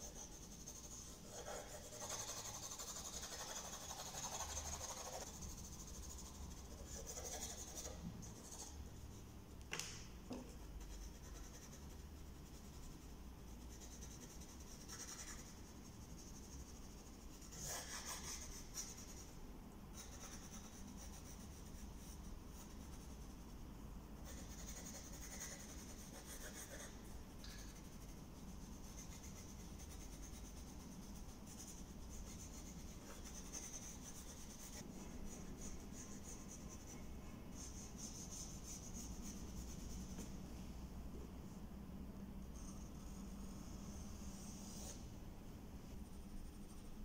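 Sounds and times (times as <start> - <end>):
pencil scratching on paper: 0.0 - 8.8, 10.5 - 19.4, 24.2 - 27.0, 27.6 - 40.3, 42.5 - 45.1.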